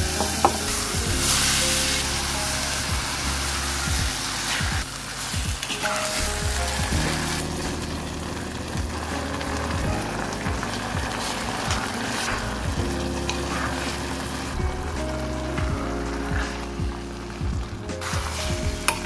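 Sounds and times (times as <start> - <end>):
vegetables sizzling in a pot: 0.0 - 14.6
background music: 0.0 - 19.0.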